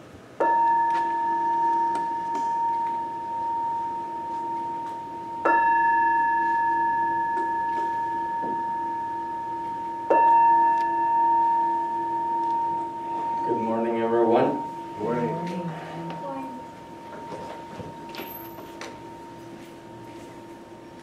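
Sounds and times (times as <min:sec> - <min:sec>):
singing bowl ringing: 0:00.4 - 0:21.0.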